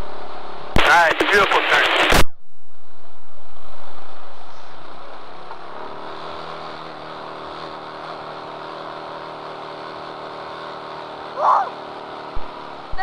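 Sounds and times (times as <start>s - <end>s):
kart engine running: 4.0s - 13.0s.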